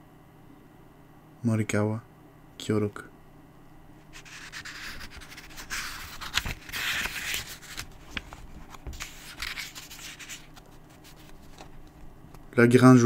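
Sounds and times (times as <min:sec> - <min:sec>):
book pages rustling: 0:04.2 - 0:12.6.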